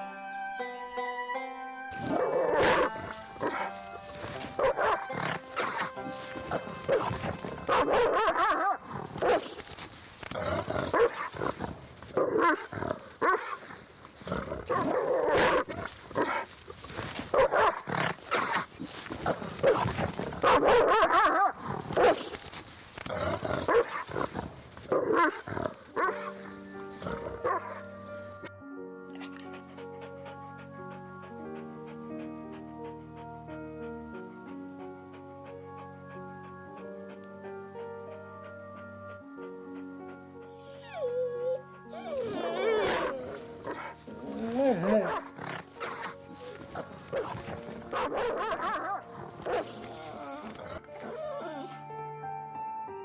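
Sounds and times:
background music: 0.0 - 53.0
dog barking: 2.1 - 3.7, 4.6 - 6.0, 6.8 - 9.6, 10.9 - 11.3, 17.3 - 17.9, 19.6 - 22.4, 23.7 - 24.0, 46.8 - 49.8.

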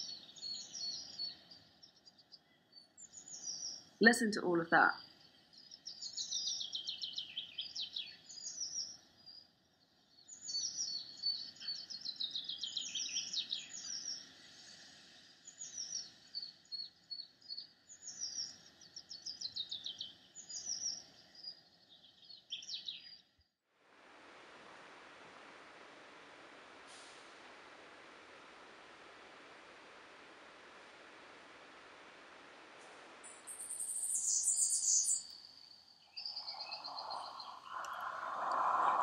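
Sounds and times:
birdsong: 0.0 - 23.4, 33.3 - 39.0
steady hiss: 13.2 - 16.3, 23.7 - 39.0.

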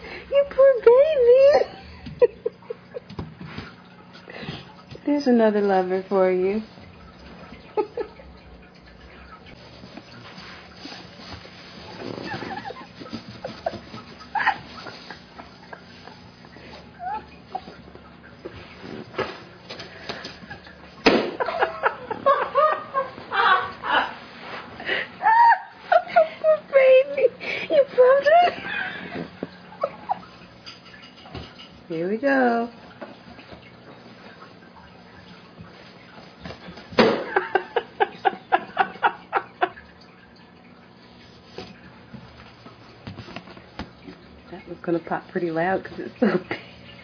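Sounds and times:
person laughing: 21.4 - 24.2, 25.2 - 30.2.

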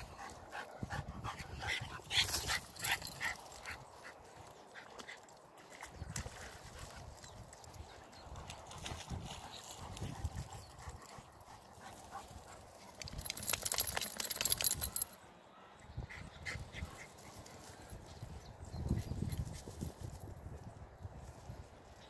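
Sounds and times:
dog shaking water from coat: 13.2 - 15.0.

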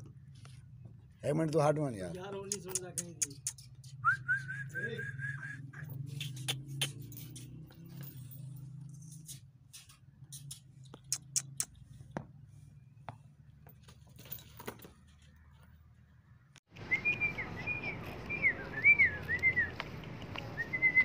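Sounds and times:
metal dog chain clinking: 5.8 - 10.7, 13.8 - 15.1.

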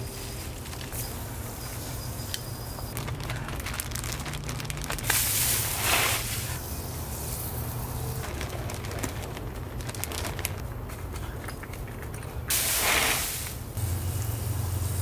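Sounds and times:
coffee grounds pattering on leaves: 0.0 - 10.6.

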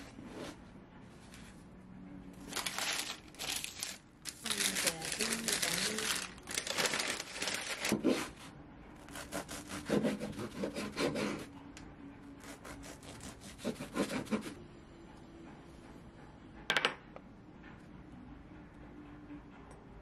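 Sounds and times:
knife sawing through crusty bread: 2.6 - 8.4, 9.0 - 11.5, 12.4 - 14.6.

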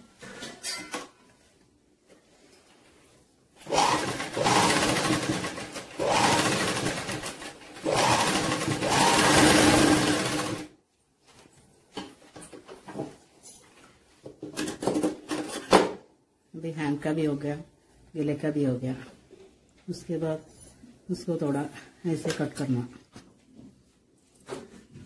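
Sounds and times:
sewing machine running: 3.7 - 10.7.

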